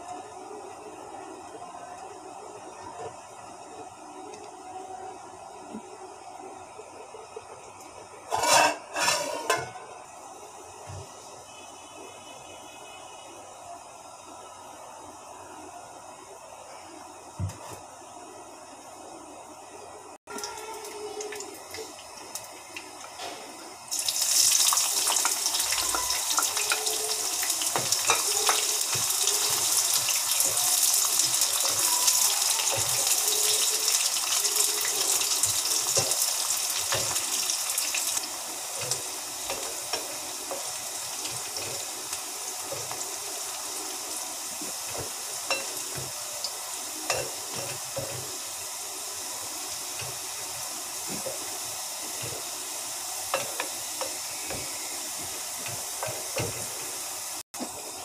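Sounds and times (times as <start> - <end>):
onions sizzling in hot oil: 8.2 - 15.3, 20.3 - 58.0
wooden spatula scraping pan: 8.3 - 9.6.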